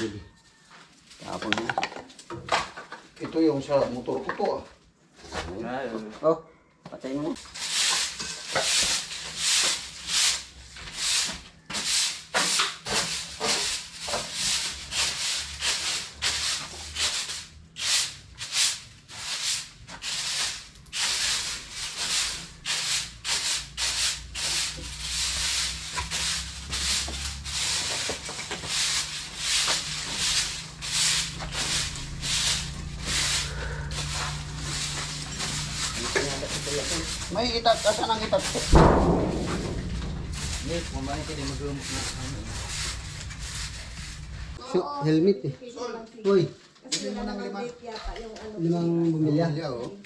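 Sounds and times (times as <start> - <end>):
broom sweeping a hard floor: 7.3 - 44.6.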